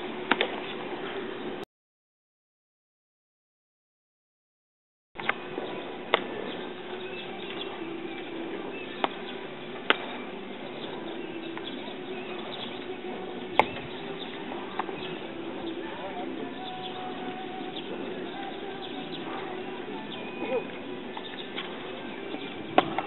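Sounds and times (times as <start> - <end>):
ballpark hum: 5.2 - 23.0.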